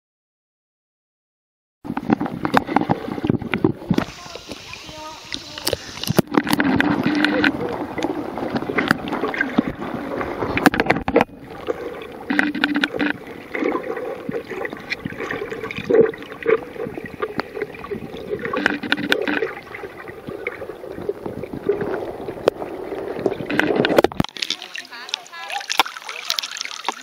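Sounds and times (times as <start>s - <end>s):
muffled underwater gurgling: 1.9s - 25.6s.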